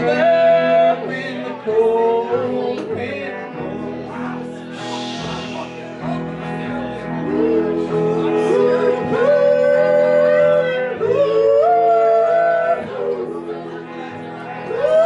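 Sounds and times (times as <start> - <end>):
live band playing: 0.0 - 15.0
voices singing in harmony: 7.1 - 15.0.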